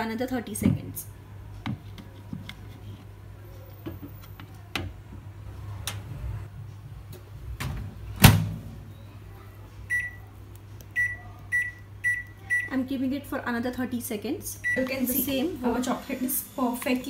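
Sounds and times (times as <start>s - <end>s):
microwave door thump: 7.6s - 8.6s
high keypad beeps: 9.9s - 10.2s, 11.0s - 12.7s.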